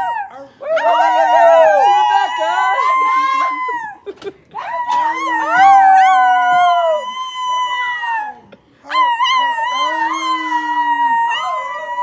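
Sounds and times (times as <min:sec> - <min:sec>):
people howling: 0:00.0 - 0:12.0.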